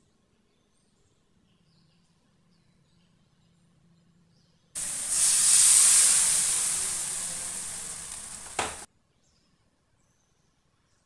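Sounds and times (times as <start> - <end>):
water sizzling in hot oil: 4.8 - 8.9
knock: 8.5 - 8.8.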